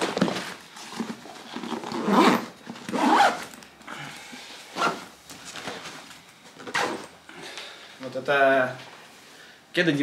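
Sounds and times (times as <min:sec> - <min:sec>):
zipper pulled: 0:00.9 - 0:03.5, 0:04.7 - 0:05.1.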